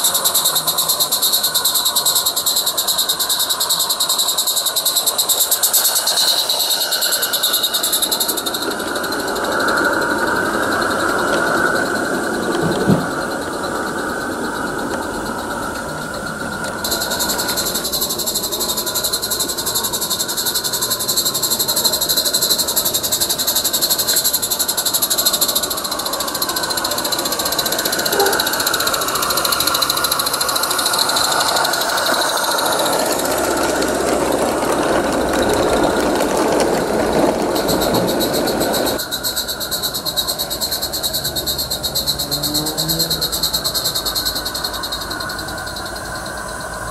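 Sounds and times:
steam hiss: 0.0s - 46.9s
steam locomotive exhaust chuffing: 0.0s - 46.9s
train wheels rolling on track: 0.0s - 46.9s.

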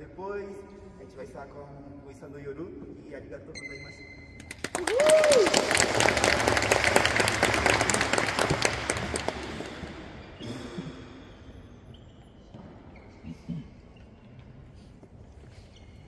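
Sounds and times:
audience applauding: 4.4s - 10.1s.

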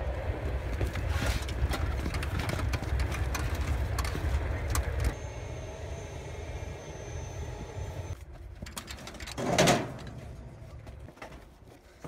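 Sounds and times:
tank engine idling: 1.9s - 8.2s
faint high whine: 5.1s - 8.2s.

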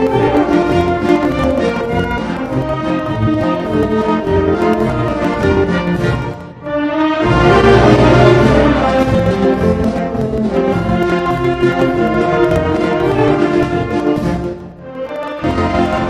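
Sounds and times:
orchestral brass music: 0.0s - 16.0s.

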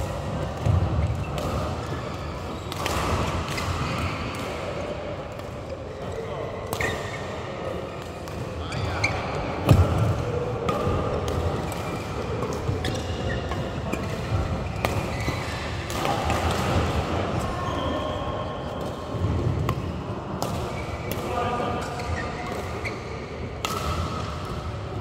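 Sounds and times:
rackets smacking shuttlecock: 0.0s - 5.6s, 9.6s - 17.1s, 19.6s - 22.8s, 23.6s - 24.7s
court shoes squeaking: 0.5s - 16.7s, 17.4s - 24.7s.

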